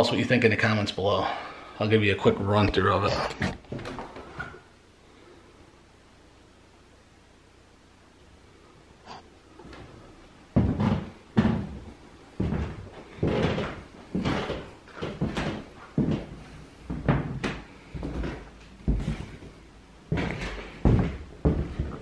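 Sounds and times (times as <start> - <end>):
heavy footsteps on hard floor: 10.5 - 22.0.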